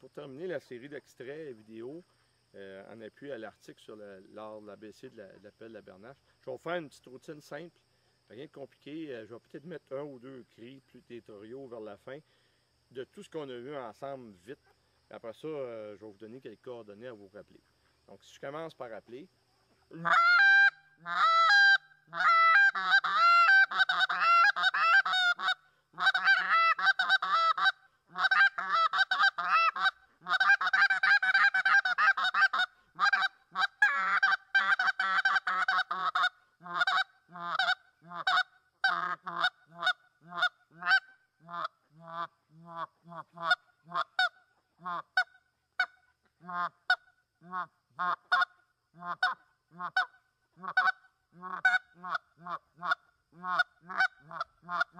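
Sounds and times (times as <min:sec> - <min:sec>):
goose call honks and clucks: 0:19.9 - 0:54.9.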